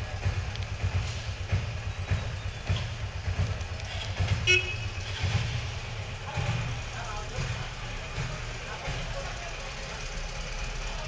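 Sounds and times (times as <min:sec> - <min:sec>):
street traffic rumble: 0:00.0 - 0:11.0
vehicle horn beep: 0:04.4 - 0:05.3.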